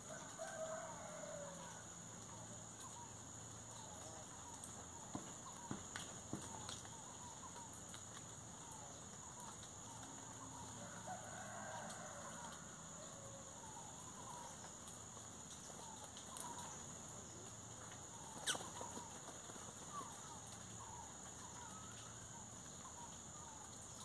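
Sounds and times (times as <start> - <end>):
bird chirps and calls: 18.2 - 19.1.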